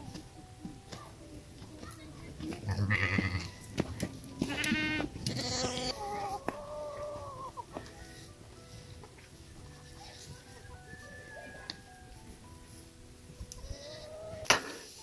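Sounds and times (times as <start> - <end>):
farm animals calling: 2.6 - 3.6, 4.4 - 9.0, 9.6 - 11.9, 13.5 - 15.0.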